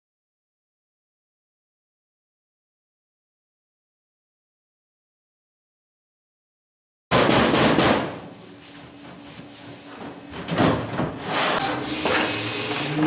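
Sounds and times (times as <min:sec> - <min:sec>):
low mechanical hum: 0:07.1 - 0:13.0
air hissing: 0:11.2 - 0:13.0.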